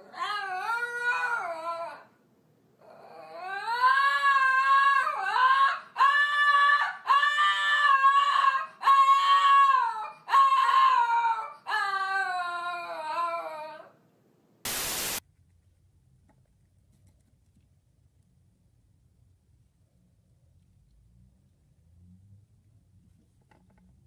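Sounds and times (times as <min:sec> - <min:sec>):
dog howling: 0:00.0 - 0:02.1, 0:02.8 - 0:14.0
static hiss: 0:14.6 - 0:15.2.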